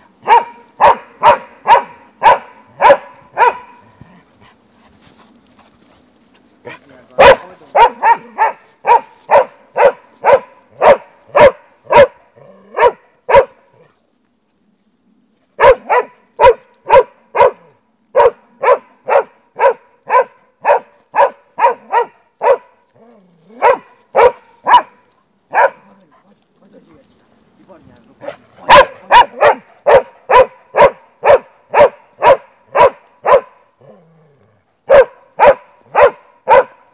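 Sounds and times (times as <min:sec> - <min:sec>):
dog barking: 0:00.2 - 0:03.9, 0:07.2 - 0:13.6, 0:15.6 - 0:22.7, 0:23.5 - 0:26.0, 0:28.2 - 0:33.6, 0:34.9 - 0:36.9.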